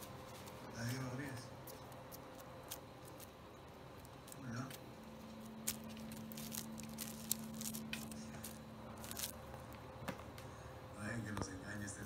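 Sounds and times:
kitten rustling and scratching paper: 0:00.0 - 0:09.6.

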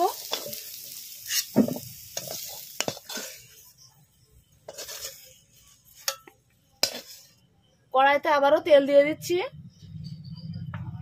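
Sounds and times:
metal spatula scraping a pan: 0:00.0 - 0:07.4
hot oil sizzling: 0:00.0 - 0:07.5.

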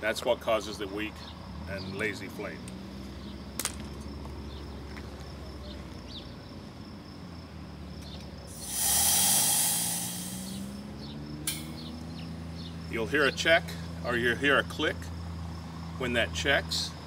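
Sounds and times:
gas hissing from torch: 0:08.5 - 0:10.8, 0:11.5 - 0:11.7
valve click: 0:11.5 - 0:11.7.

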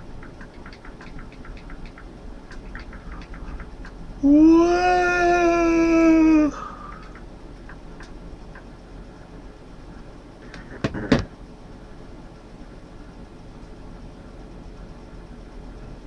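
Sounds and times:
faint clicks: 0:00.2 - 0:04.0, 0:06.9 - 0:08.7.

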